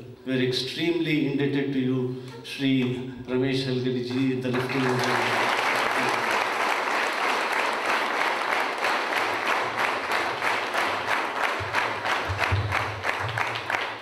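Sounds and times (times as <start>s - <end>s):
audience applauding: 4.1s - 14.0s.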